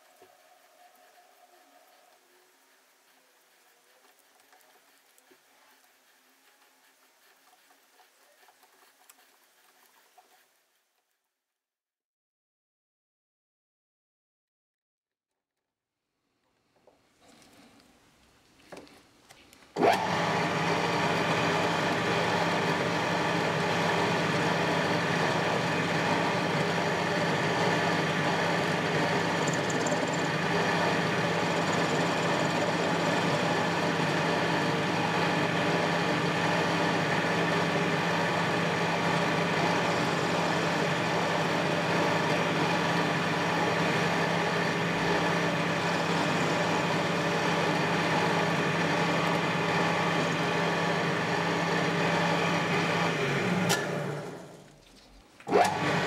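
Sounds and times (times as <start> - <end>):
metal lathe running: 19.8 - 54.5.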